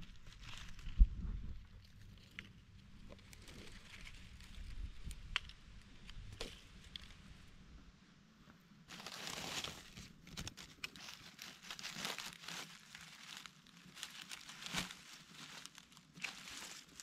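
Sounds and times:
dry leaves rustling and crackling: 0:00.0 - 0:07.4, 0:08.9 - 0:17.0.

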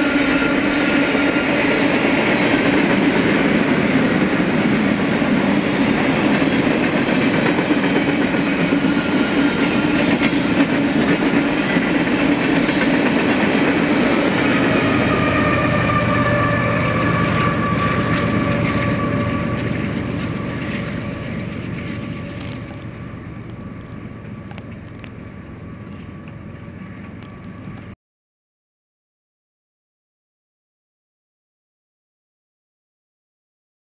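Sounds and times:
freight train wheels rumbling: 0:00.0 - 0:28.0
wheels squealing: 0:07.9 - 0:28.0.

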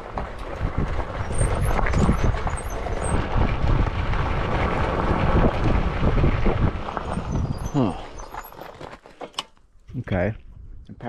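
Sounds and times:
wind rumbling on microphone: 0:00.0 - 0:08.9, 0:09.9 - 0:11.0
bike rattling over bumps: 0:00.0 - 0:09.6
tyres crunching on gravel: 0:00.0 - 0:09.7.

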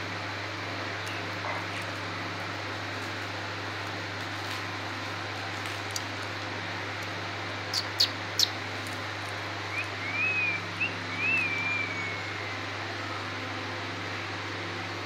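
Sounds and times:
steady background hum: 0:00.0 - 0:15.0
parakeet whistling: 0:07.7 - 0:08.6, 0:09.7 - 0:12.6.

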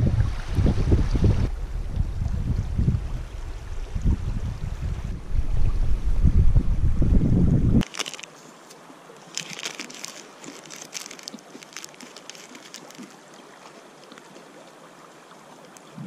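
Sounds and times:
wrapper crinkling: 0:07.8 - 0:08.4, 0:09.2 - 0:14.3.

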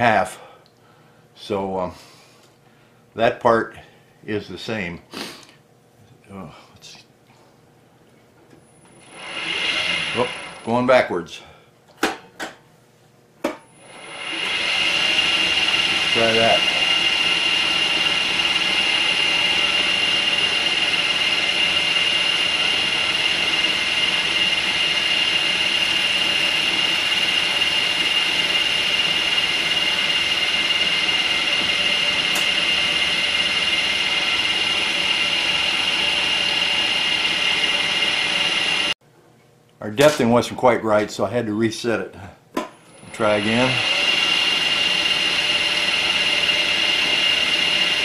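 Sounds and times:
milling spindle high whine: 0:08.5 - 0:11.1, 0:13.6 - 0:39.0, 0:42.8 - 0:48.0.

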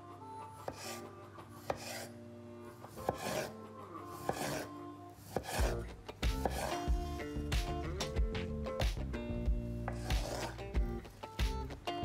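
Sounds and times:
knife slicing beetroot: 0:00.6 - 0:02.1, 0:02.9 - 0:08.1, 0:09.8 - 0:11.7
knife tapping wooden board: 0:06.4 - 0:06.7, 0:09.8 - 0:10.5.

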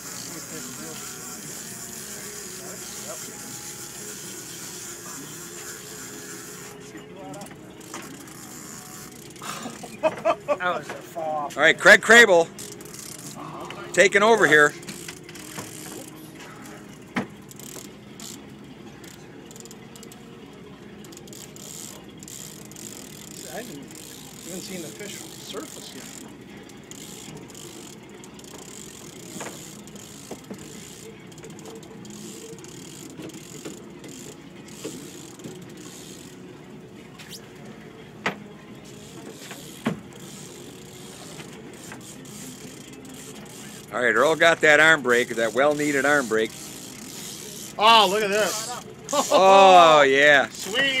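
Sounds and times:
fishing reel whirring and clicking: 0:00.0 - 0:10.1, 0:11.8 - 0:20.3, 0:21.0 - 0:36.6, 0:38.8 - 0:51.0
boat engine running: 0:00.0 - 0:51.0.

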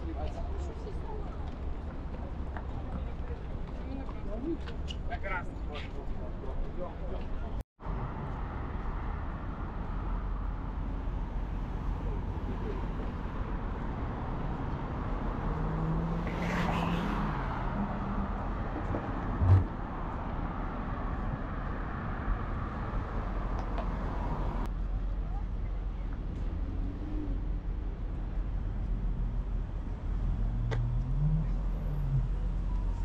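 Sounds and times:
road traffic: 0:00.0 - 0:33.0
car passing by: 0:14.6 - 0:24.7
low thump: 0:18.9 - 0:19.8.

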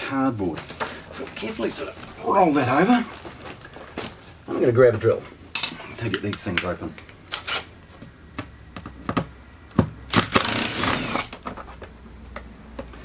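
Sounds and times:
cordless drill running: 0:10.1 - 0:11.4.

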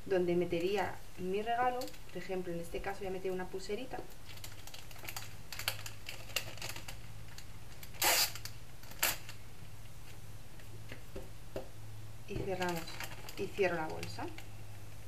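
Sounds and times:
cellophane bag crinkling: 0:04.1 - 0:09.4, 0:12.5 - 0:14.6.

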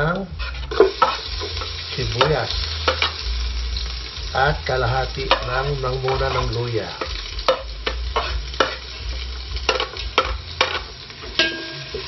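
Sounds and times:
food sizzling in hot oil: 0:00.0 - 0:12.0
spoon knocking and scraping pot: 0:00.4 - 0:03.2, 0:05.3 - 0:08.8.

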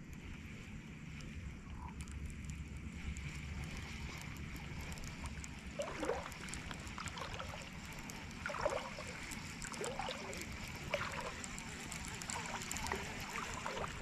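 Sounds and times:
wind rumbling on microphone: 0:00.0 - 0:14.0
small water splashes: 0:03.1 - 0:14.0.

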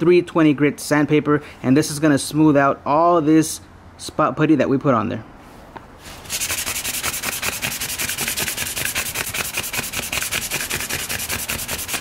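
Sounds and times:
sandpaper rubbing by hand: 0:06.0 - 0:12.0.

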